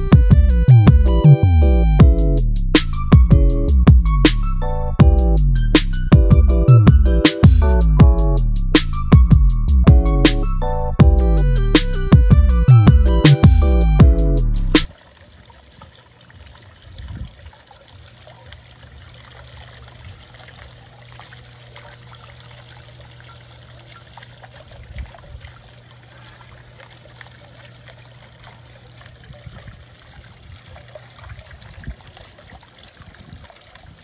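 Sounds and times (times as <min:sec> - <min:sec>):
fountain water trickling: 0:00.0 - 0:01.2, 0:13.8 - 0:34.0
low steady hum: 0:16.4 - 0:31.6.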